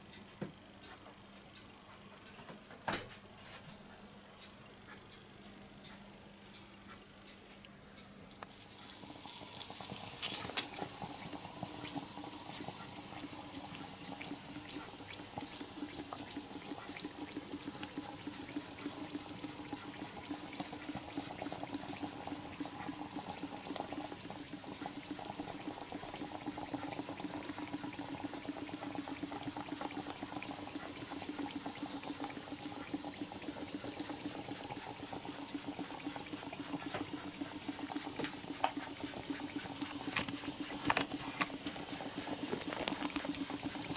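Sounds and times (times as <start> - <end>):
steam hissing: 8.4 - 43.9
steam engine chuffing: 8.8 - 43.9.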